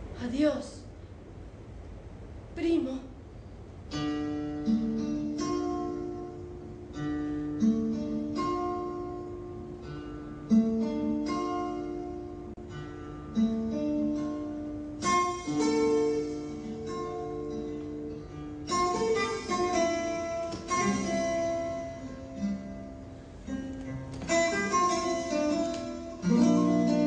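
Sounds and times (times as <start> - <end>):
plucked acoustic guitar notes: 3.9 - 27.0
strummed guitar chords: 3.9 - 27.0.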